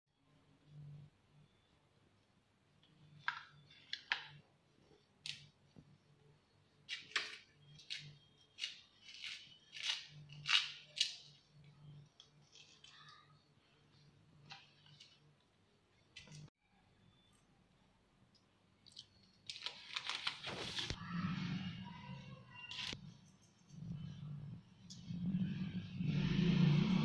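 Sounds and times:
chillies snapping and tearing: 0:07.8 - 0:11.2.

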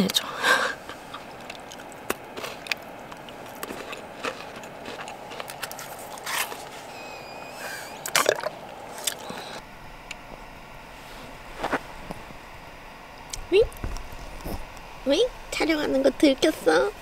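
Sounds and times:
biscuit stick crunching: 0:01.1 - 0:06.9.

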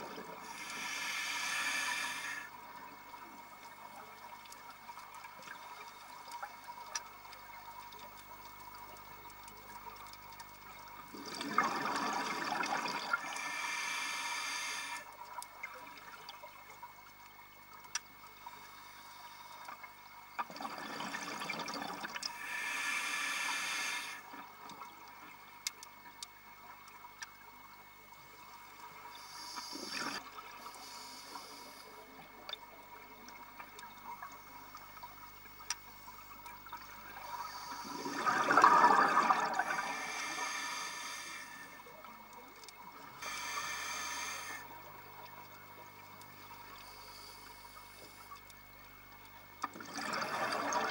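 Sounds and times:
regulator inhale hiss: 0:00.4 - 0:02.6, 0:13.0 - 0:15.2, 0:18.5 - 0:19.9, 0:22.2 - 0:24.3, 0:29.0 - 0:32.2, 0:37.2 - 0:41.9, 0:43.1 - 0:44.8, 0:46.6 - 0:48.4
diver exhaling bubbles: 0:11.1 - 0:13.2, 0:37.5 - 0:40.6.

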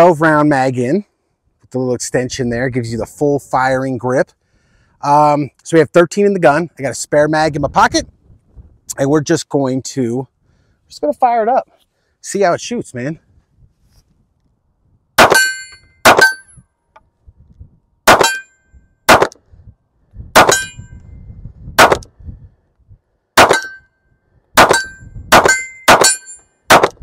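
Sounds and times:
pistol shots: 0:15.2 - 0:16.4, 0:18.1 - 0:18.5, 0:19.1 - 0:19.4, 0:20.4 - 0:20.8, 0:21.8 - 0:22.1, 0:23.4 - 0:23.8, 0:24.6 - 0:27.0
steel target ringing: 0:15.2 - 0:16.6, 0:18.1 - 0:18.6, 0:20.4 - 0:21.0, 0:23.4 - 0:23.9, 0:24.6 - 0:26.5.

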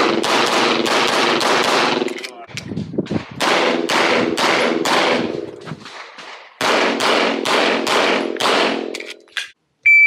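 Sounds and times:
pistol shots with echo: 0:00.0 - 0:02.2, 0:03.4 - 0:08.9.

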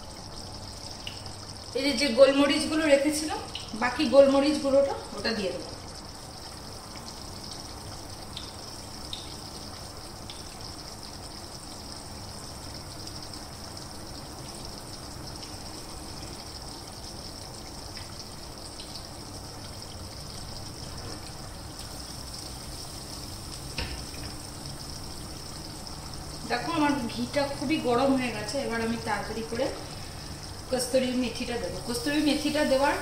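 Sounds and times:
ghee sizzling in frying pan: 0:00.0 - 0:33.0.

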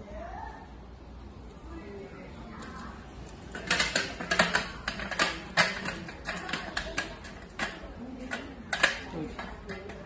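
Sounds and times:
metal slats clattering and clicking: 0:03.4 - 0:10.0.

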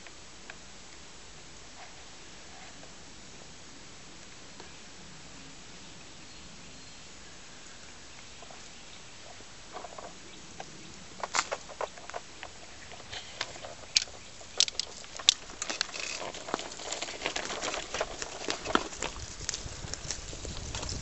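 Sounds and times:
footsteps crunching on dry leaves: 0:13.0 - 0:21.0.

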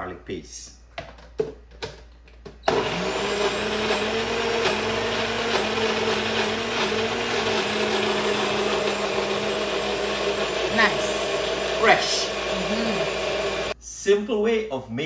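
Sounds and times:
electric blender running: 0:02.7 - 0:13.8.

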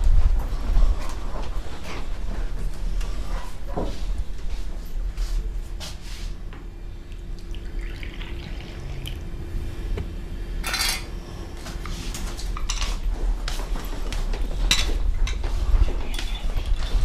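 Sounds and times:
coffee pouring into cup: 0:07.1 - 0:09.4.

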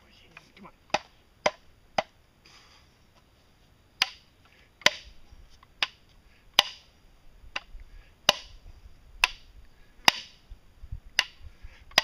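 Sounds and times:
sharp knocks on plastic pipe: 0:08.3 - 0:08.5, 0:09.2 - 0:09.4.

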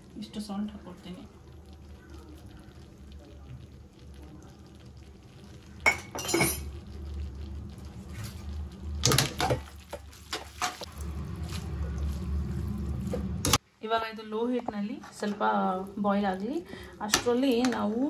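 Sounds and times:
metal utensils clinking on a pan: 0:05.8 - 0:06.8
low hum: 0:06.4 - 0:09.8, 0:10.8 - 0:13.6.

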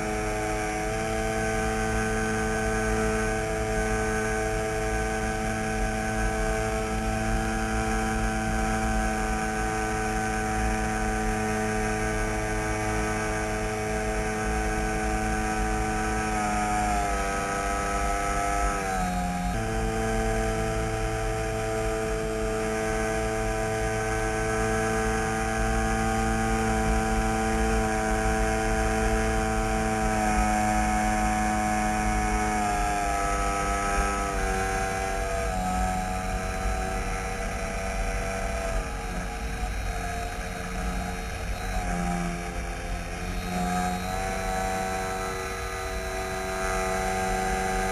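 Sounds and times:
model airplane motor and propeller: 0:00.0 - 0:47.9.

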